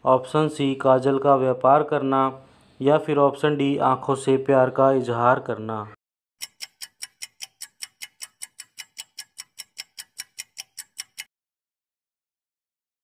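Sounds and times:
rapid clock ticks: 6.4s - 11.3s.

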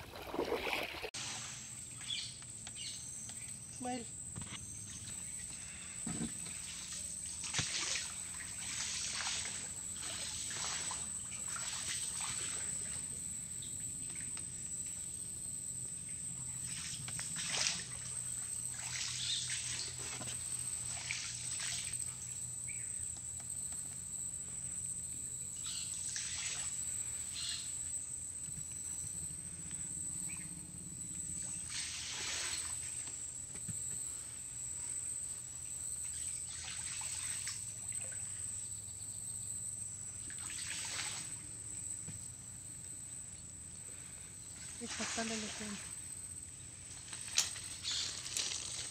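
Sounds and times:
water splashing around boat: 0.0s - 2.2s, 4.9s - 14.9s, 16.2s - 22.8s, 31.4s - 33.4s, 35.6s - 38.6s, 40.2s - 42.0s, 44.7s - 46.1s.

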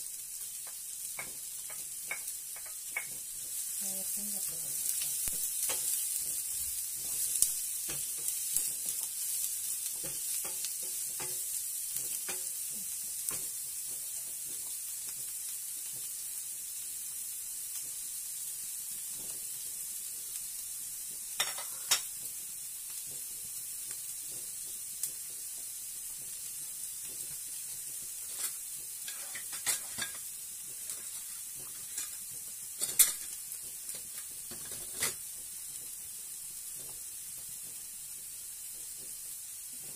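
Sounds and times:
onion sizzling in frying pan: 0.0s - 39.9s.

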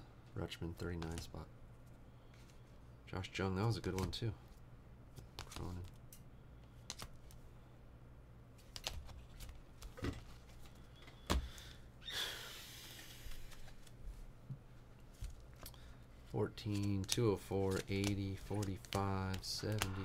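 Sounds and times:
low electrical hum: 0.0s - 20.0s
cards clicking and tapping: 0.8s - 1.4s, 3.8s - 4.2s, 5.2s - 6.0s, 6.8s - 7.4s, 8.6s - 11.6s, 16.6s - 20.0s.

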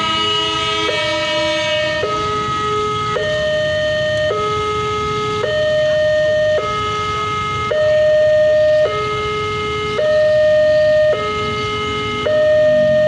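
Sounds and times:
level crossing two-tone siren: 0.0s - 13.0s.

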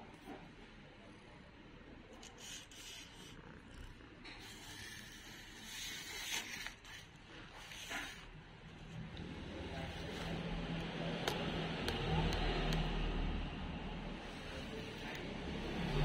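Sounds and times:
cat rubbing against microphone: 2.2s - 8.4s.

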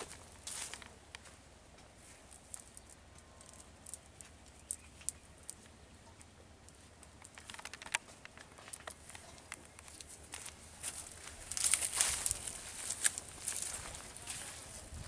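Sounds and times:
cast net ticks and rustles: 0.0s - 15.0s
cluster of clicks: 1.8s - 10.6s.

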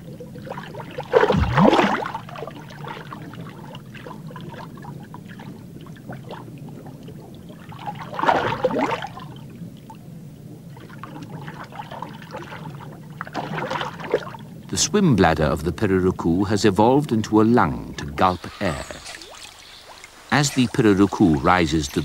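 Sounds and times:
gulping rush of water: 0.0s - 22.0s
low underwater rumble: 1.2s - 7.6s.

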